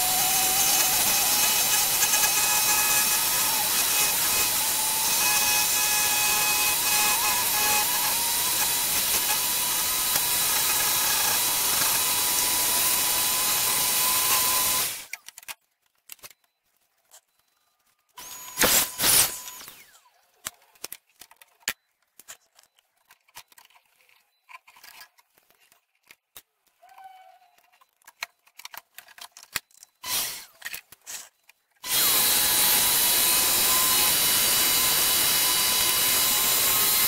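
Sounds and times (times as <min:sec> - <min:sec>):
jigsaw cutting wood: 0:00.0 - 0:15.1, 0:18.2 - 0:19.9, 0:30.0 - 0:30.5, 0:31.8 - 0:37.0.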